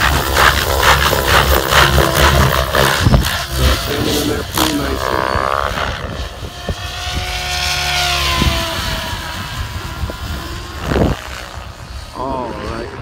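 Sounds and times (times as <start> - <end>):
rc helicopter rotor and motor: 0.0 - 13.0.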